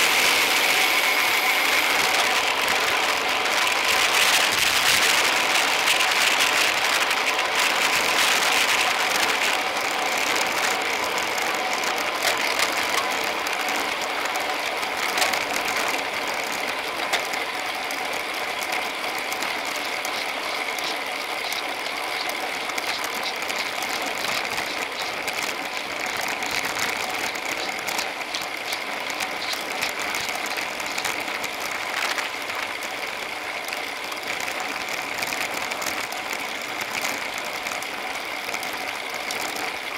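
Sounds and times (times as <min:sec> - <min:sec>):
tyres hissing on road: 0:00.0 - 0:06.9
bicycle freewheel hubs ticking: 0:00.0 - 0:39.9
wind: 0:00.0 - 0:39.9.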